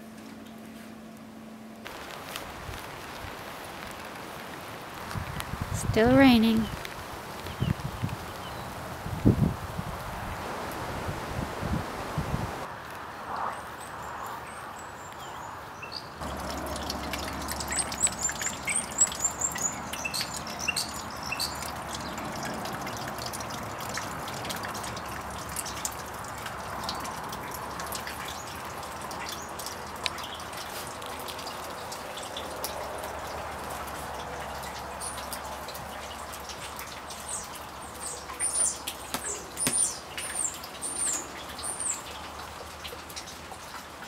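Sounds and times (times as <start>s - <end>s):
rain dripping and pattering: 0.0s - 44.0s
bird chirping: 17.6s - 21.7s.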